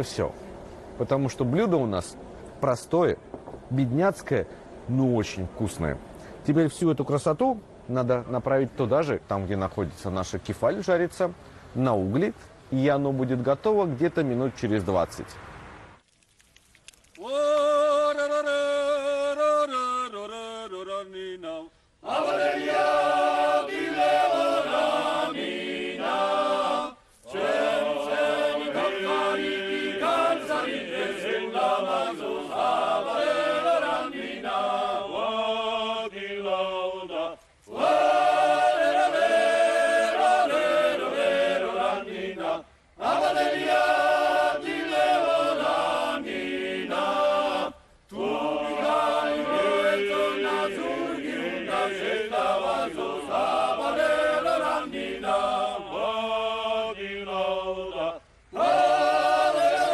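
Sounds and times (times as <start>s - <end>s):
male vocal ensemble singing: 17.2s - 59.9s.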